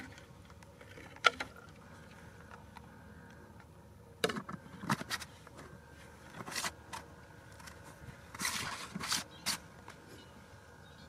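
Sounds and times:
plastic jar scraping rustles: 8.3 - 9.6.

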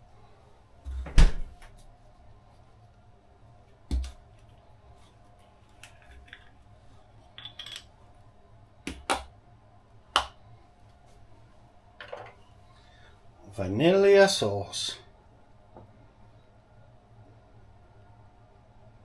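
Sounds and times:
kitchen items clicking and knocking: 7.4 - 7.9.

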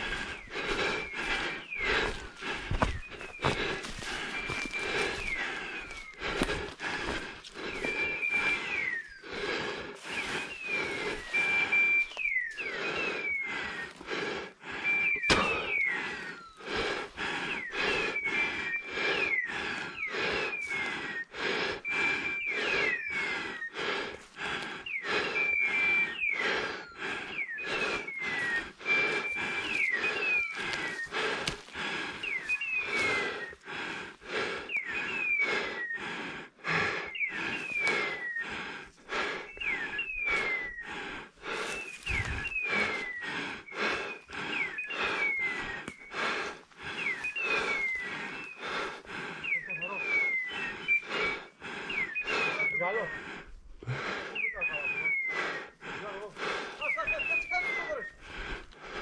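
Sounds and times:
footsteps through undergrowth: 0.0 - 9.2, 9.9 - 12.7, 13.7 - 14.1, 27.8 - 33.6, 41.4 - 43.2
falling chirps: 0.0 - 55.8, 56.4 - 58.7.

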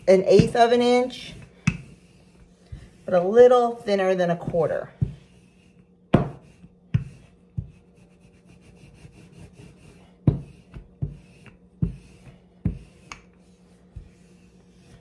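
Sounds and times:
faint steady hum: 0.0 - 15.0
rolling pin rolling dough: 0.0 - 15.0.

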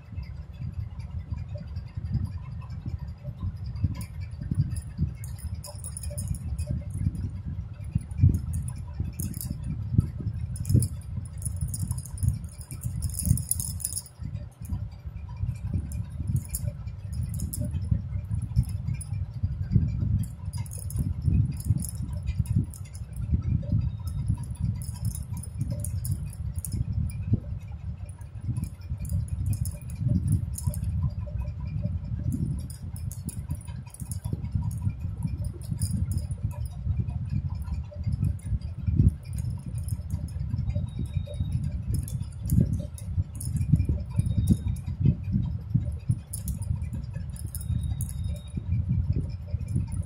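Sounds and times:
light high clinks and crackles: 0.0 - 50.0
rubbing handling noise: 4.8 - 7.0, 8.0 - 9.7, 10.5 - 14.8, 20.2 - 23.2.

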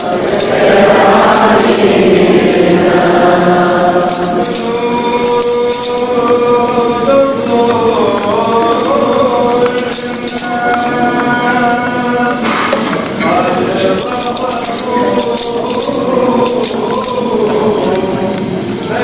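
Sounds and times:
small metal bells jingling: 0.0 - 2.5, 3.8 - 6.7, 9.5 - 12.4, 13.1 - 19.0
voices chanting a hymn: 0.0 - 19.0.

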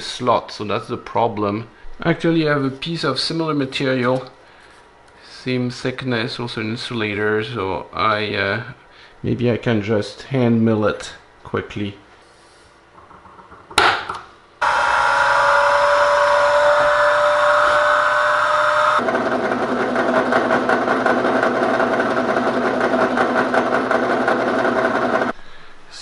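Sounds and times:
cutter milling sheet: 14.6 - 25.3
milling machine spindle whine: 14.6 - 25.3.

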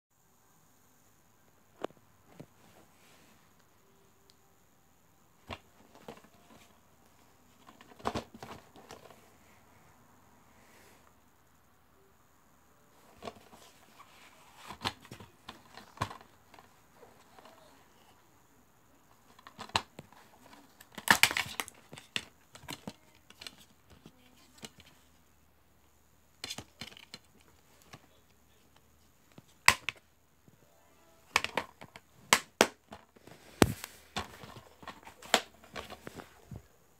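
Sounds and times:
plastic case sliding and rustling: 7.5 - 9.4, 13.0 - 17.7, 31.2 - 36.6.

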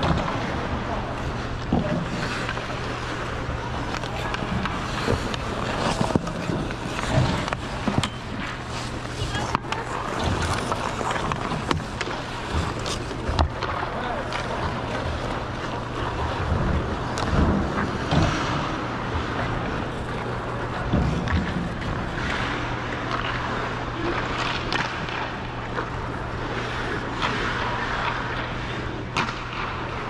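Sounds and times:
steady low hum: 0.0 - 30.0
ice skate blades scraping: 1.8 - 16.4.

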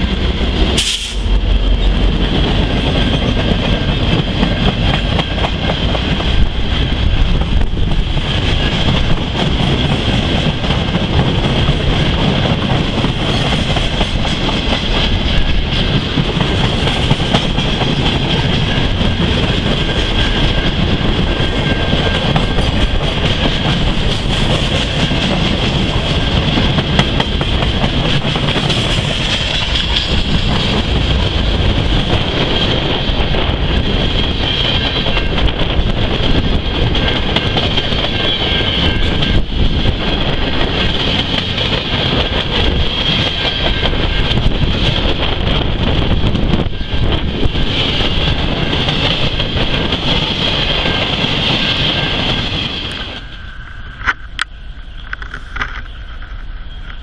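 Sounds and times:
train wheels rumbling on rails: 0.0 - 57.0
high ringing tone: 18.4 - 23.0, 37.0 - 40.5, 50.4 - 57.0.

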